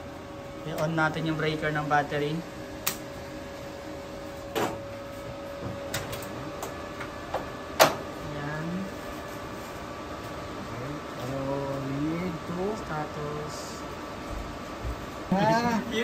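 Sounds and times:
steady electrical tone: 0.0 - 14.4.

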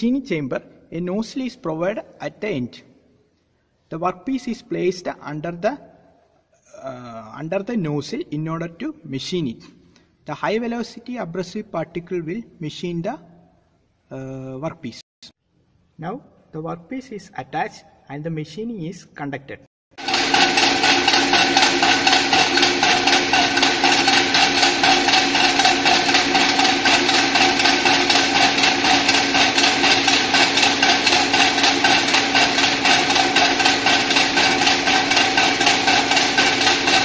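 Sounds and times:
air compressor pumping: 20.0 - 37.0.

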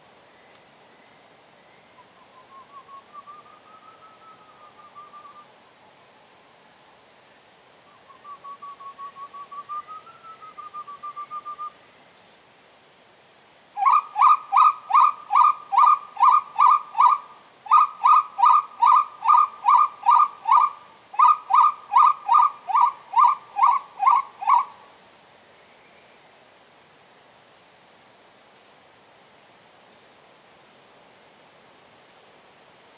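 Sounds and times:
quail whistled calls: 13.8 - 24.8.

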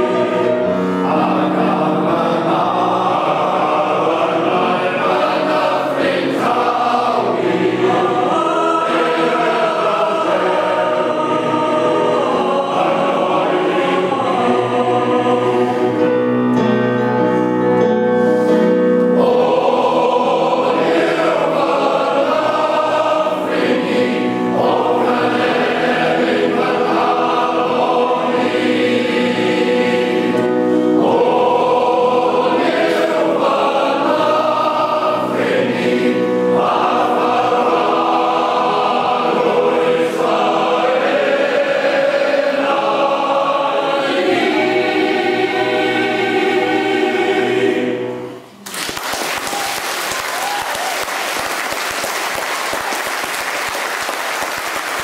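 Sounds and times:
male choir singing: 0.0 - 16.7, 18.4 - 48.5
audience applause: 48.6 - 55.0.

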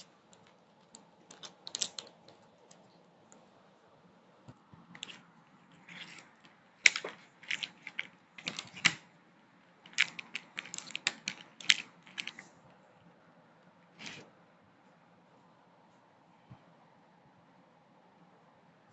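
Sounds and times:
plastic toy tiles clicking: 1.3 - 2.4, 5.0 - 5.2, 5.8 - 9.0, 9.9 - 12.4, 14.0 - 14.2
plastic wrap crinkling: 9.9 - 12.4.

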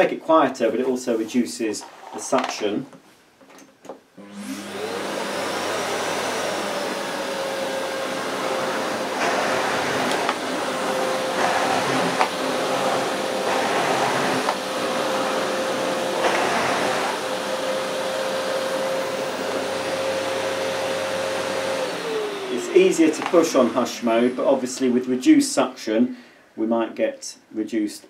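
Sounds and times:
vacuum cleaner motor whine: 4.2 - 25.2.

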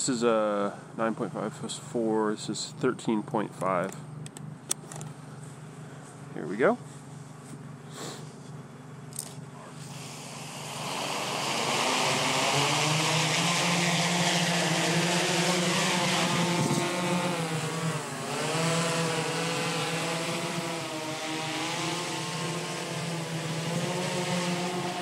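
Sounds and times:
drone propellers humming and whining: 0.0 - 25.0.

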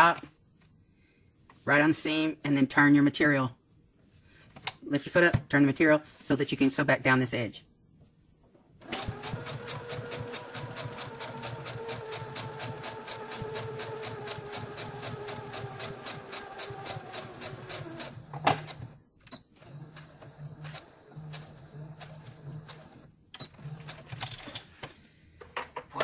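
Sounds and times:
sewing machine stitching: 8.8 - 19.0, 19.6 - 24.6.

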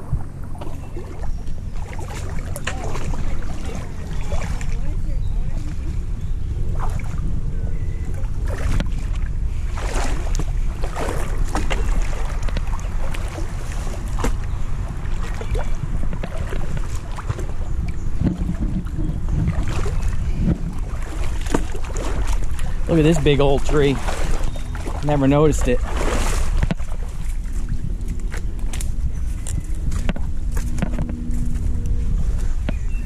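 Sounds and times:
water sounds: 0.0 - 33.0
wind buffeting microphone: 0.0 - 33.0
boat knocks: 8.5 - 28.9, 29.9 - 31.6.

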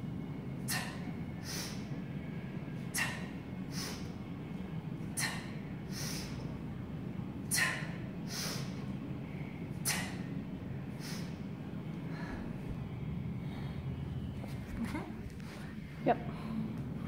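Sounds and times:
low hum: 0.0 - 17.0
sharp forceful breaths: 5.1 - 6.6, 7.4 - 12.6.

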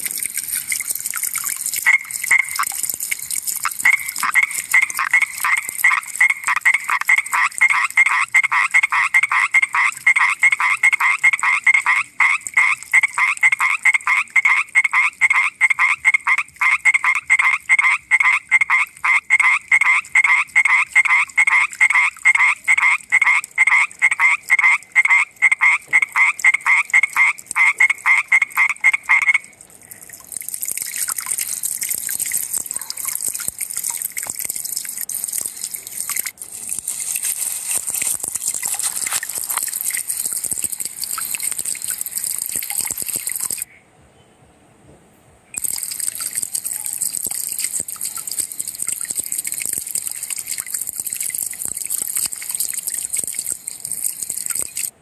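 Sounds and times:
tree frog croaking: 1.8 - 2.8, 3.6 - 29.5, 37.2 - 43.8
high hiss with crackles: 34.7 - 43.6.

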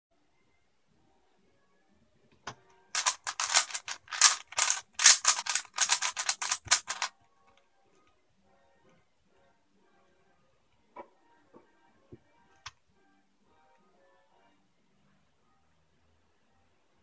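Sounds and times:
plastic puzzle cube clacking: 3.0 - 7.1
puzzle cube click: 3.0 - 7.1.

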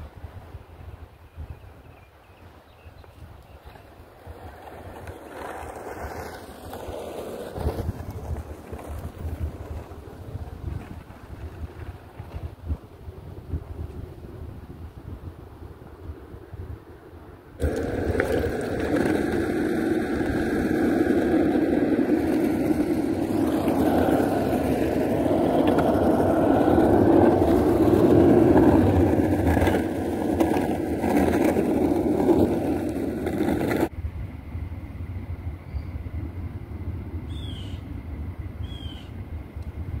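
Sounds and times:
skateboard wheels rolling on asphalt: 0.0 - 40.0
wheels clicking over bumps: 3.4 - 14.1, 17.6 - 33.9.

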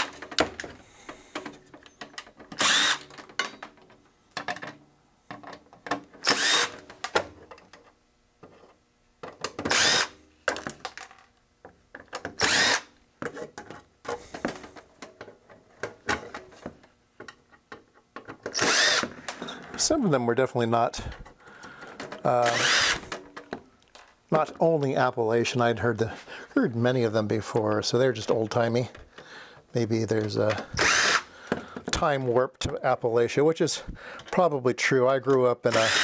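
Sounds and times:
cordless drill spinning: 2.6 - 3.1, 6.2 - 6.8, 9.7 - 10.2, 12.4 - 12.9, 18.5 - 19.4, 22.4 - 23.1, 30.7 - 31.3, 35.7 - 36.0.

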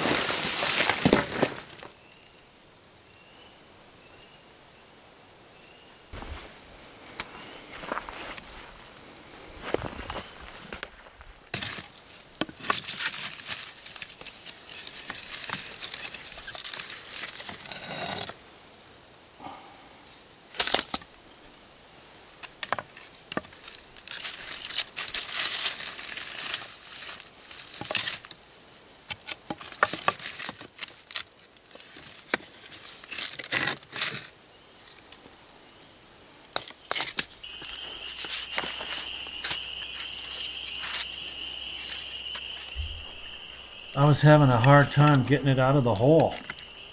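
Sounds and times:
sticks scraping rocks and charcoal: 0.0 - 1.9, 9.6 - 18.4, 22.0 - 28.4, 29.1 - 35.2, 36.5 - 46.9
steady high whine: 37.4 - 46.9.

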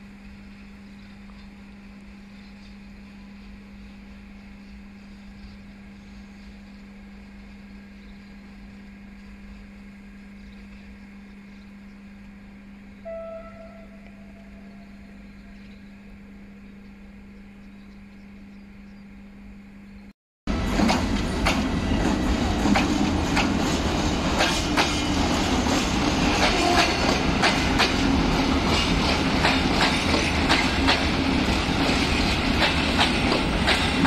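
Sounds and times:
short tone: 13.0 - 15.2
freight train rumble: 20.5 - 34.0.

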